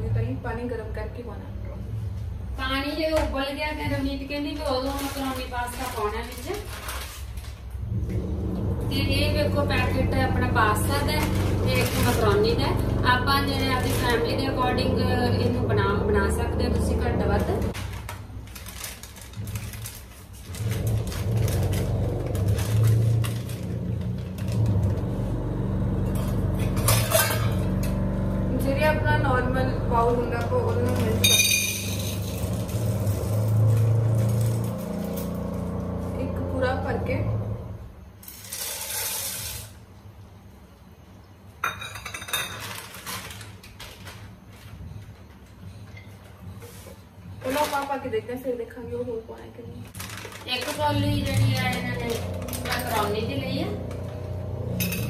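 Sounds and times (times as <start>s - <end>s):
low mechanical hum: 0.0s - 55.0s
metal spoon clinking in pot: 31.2s - 32.3s.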